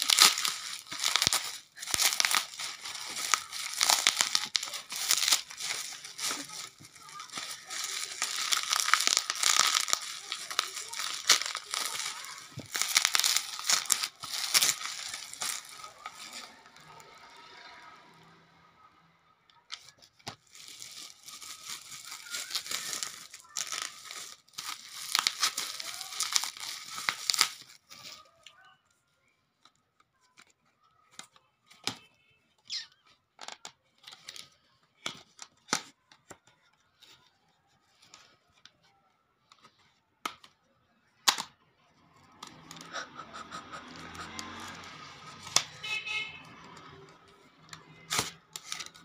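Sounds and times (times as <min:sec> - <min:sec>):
bubble wrap crinkling and tearing: 0:00.0 - 0:17.9, 0:19.6 - 0:28.6, 0:33.5 - 0:38.7, 0:42.1 - 0:49.0.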